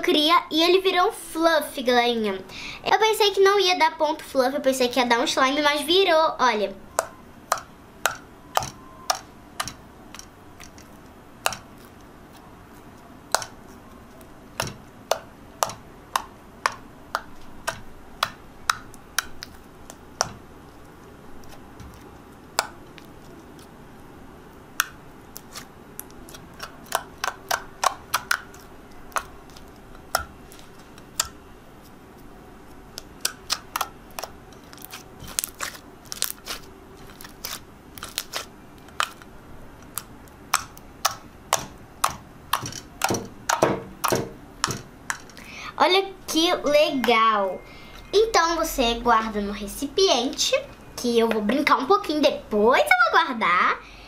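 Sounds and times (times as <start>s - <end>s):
slime clicking and popping: 6.9s - 12.1s, 13.3s - 20.4s, 24.8s - 31.4s, 32.9s - 39.2s, 39.8s - 45.3s.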